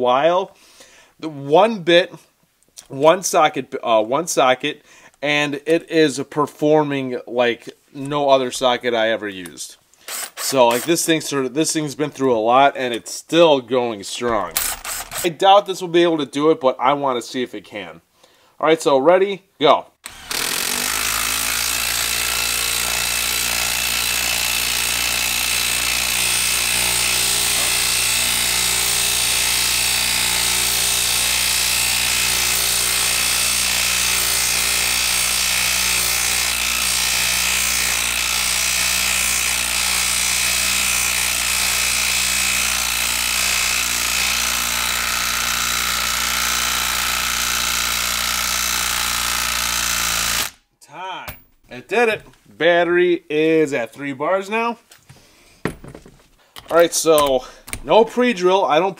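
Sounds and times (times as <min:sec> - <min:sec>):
impact driver hammering: 0:10.1 - 0:11.0, 0:14.3 - 0:15.3, 0:20.0 - 0:50.6.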